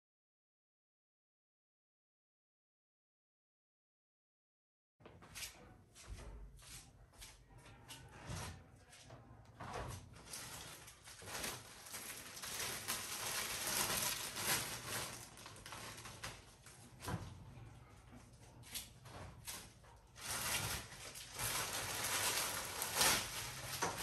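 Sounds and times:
fabric rustling: 9.9s - 17.0s, 18.8s - 24.0s
plastic packaging crinkling: 10.2s - 17.0s, 19.5s - 24.0s.

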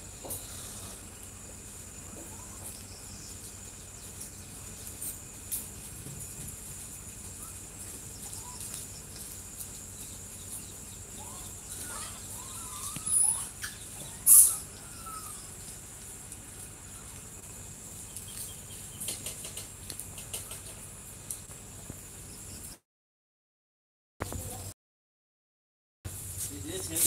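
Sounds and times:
high insect hiss: 0.0s - 22.8s, 26.1s - 27.0s
small birds chirping: 0.0s - 22.8s.

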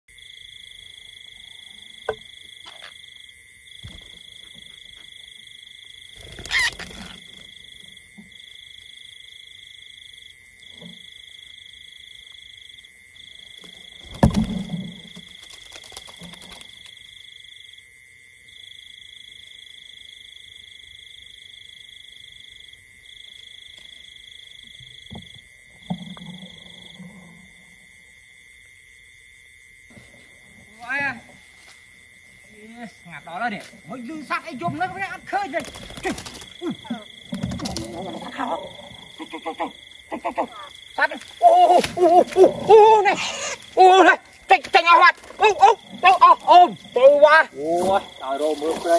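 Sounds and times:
short loud calls: 6.2s - 7.3s.

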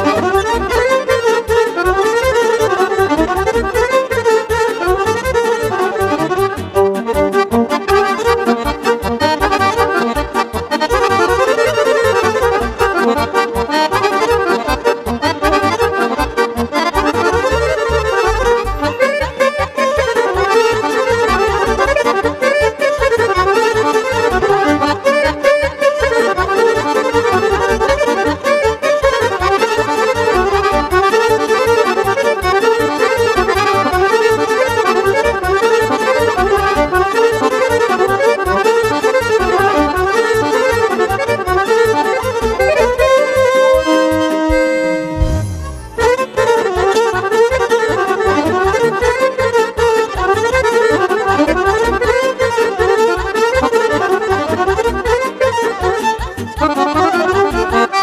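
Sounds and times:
digital accordion: 0.0s - 58.0s
electric violin: 0.0s - 58.0s
keyboard accompaniment: 0.0s - 58.0s
steady bass beat: 44.4s - 46.4s.

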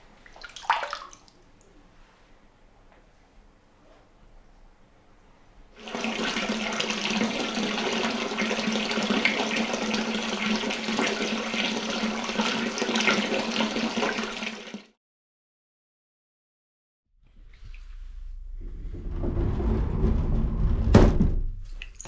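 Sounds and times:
hot water pouring from a tap: 5.8s - 15.0s.

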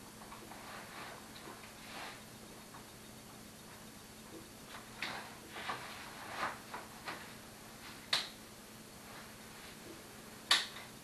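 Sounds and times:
fabric rustling: 5.0s - 8.0s.

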